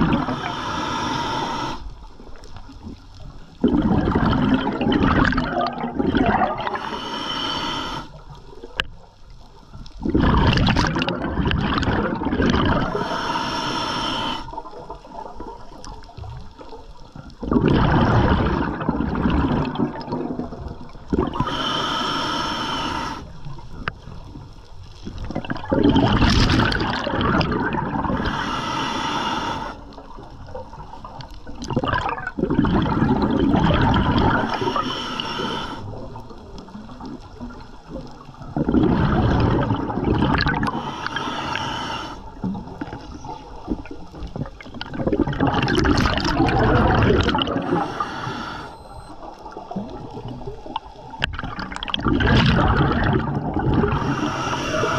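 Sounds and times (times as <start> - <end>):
exhaled bubbles rumbling: 0.0 - 0.5, 2.0 - 6.9, 8.1 - 13.2, 14.5 - 21.7, 23.3 - 28.6, 29.8 - 54.9
regulator hissing inhale: 0.2 - 2.0, 6.7 - 8.2, 12.9 - 14.6, 21.3 - 23.3, 28.2 - 30.0, 34.4 - 36.0, 40.5 - 43.5, 47.6 - 49.0, 53.9 - 54.9.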